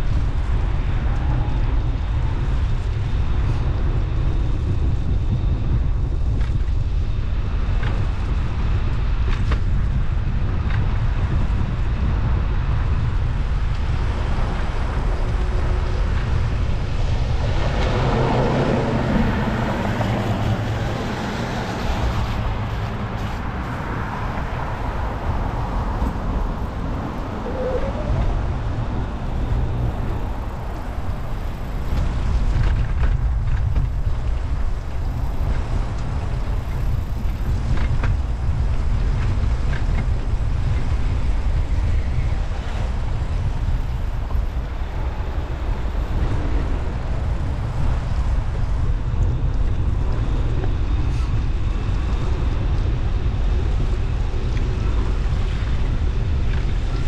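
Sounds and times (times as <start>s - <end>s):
wind rumbling on microphone: 0.0s - 57.0s
road traffic passing: 12.6s - 57.0s.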